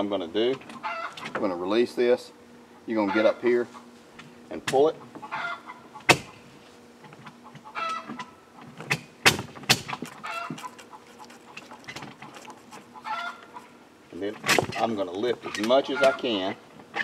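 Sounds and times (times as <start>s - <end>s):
chickens clucking: 5.0s - 8.8s, 9.9s - 13.8s, 15.5s - 16.6s.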